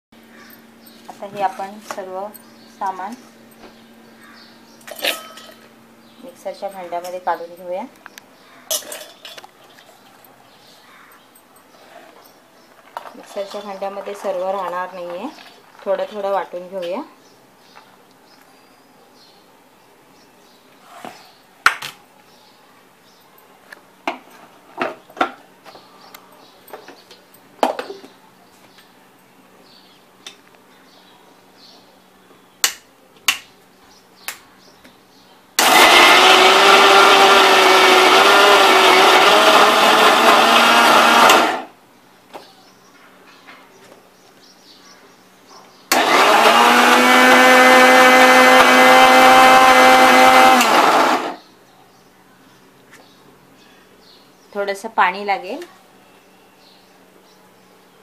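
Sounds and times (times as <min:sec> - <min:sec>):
electric mixer grinder running: 0:35.6 - 0:41.7, 0:45.9 - 0:51.4.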